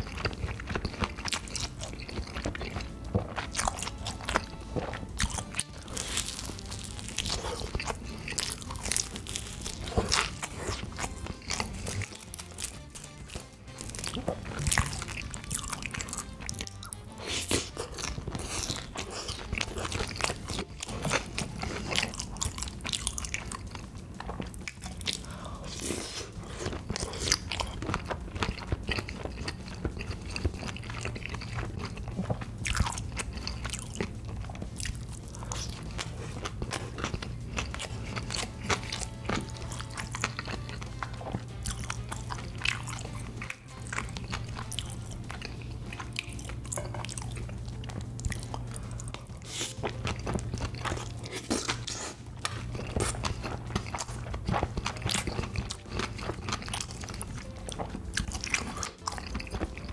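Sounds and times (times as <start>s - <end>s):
chewing and lip smacks: 0.0s - 59.9s.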